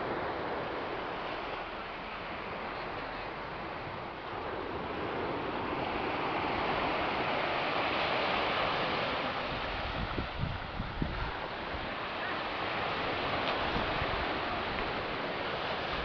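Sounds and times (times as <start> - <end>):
waves washing up beach: 0.0 - 16.0
wind bumps on microphone: 9.4 - 12.0, 12.8 - 16.0.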